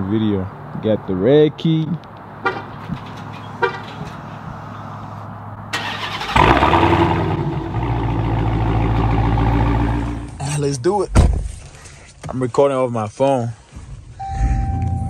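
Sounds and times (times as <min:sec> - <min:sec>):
car horn chirps: 0:02.4 - 0:02.8, 0:03.5 - 0:04.1
car engine starting and idling: 0:05.7 - 0:10.7.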